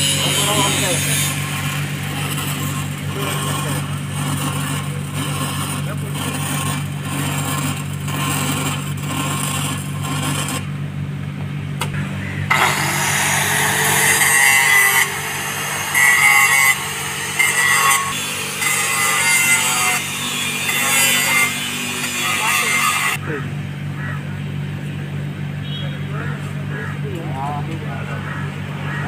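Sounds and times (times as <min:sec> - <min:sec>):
welding arc crackling: 0:00.0 - 0:10.6, 0:12.5 - 0:23.1
angle grinder grinding steel: 0:00.0 - 0:10.8, 0:12.0 - 0:23.2
steady low hum: 0:00.0 - 0:22.3.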